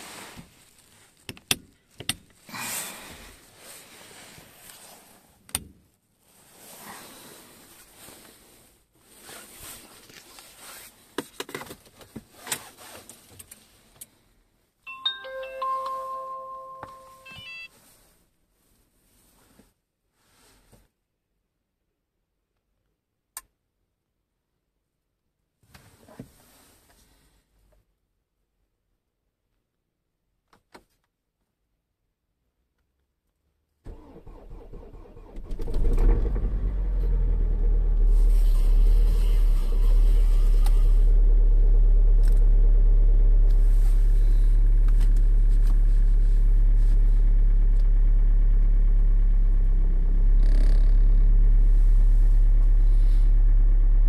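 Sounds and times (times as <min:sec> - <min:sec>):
dashboard electronic welcome chime: 0:14.9 - 0:17.8.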